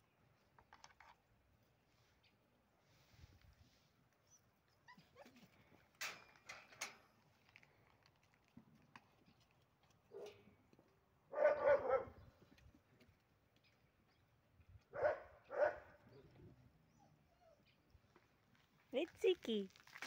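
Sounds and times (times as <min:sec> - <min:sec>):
puppy yelping: 0:04.3 - 0:05.5
puppy barking: 0:11.3 - 0:12.2, 0:14.9 - 0:16.0.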